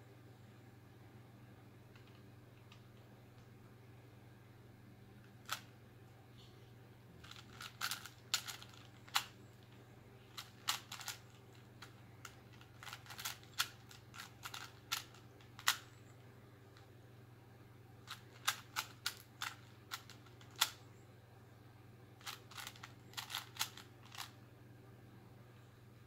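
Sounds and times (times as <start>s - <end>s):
faint steady hum: 0.0s - 26.0s
puzzle cube clicking as twisted: 7.2s - 9.3s, 10.3s - 15.9s, 18.1s - 20.8s, 22.2s - 24.3s.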